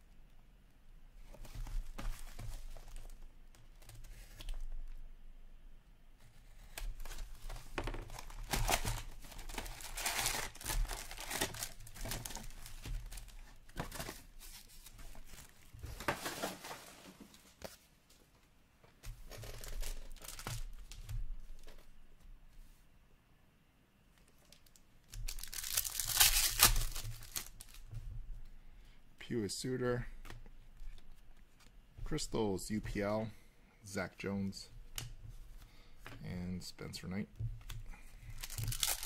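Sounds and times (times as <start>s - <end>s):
foil wrappers crinkling: 7.8s - 13.7s, 19.3s - 21.0s, 24.5s - 27.9s, 38.2s - 39.0s.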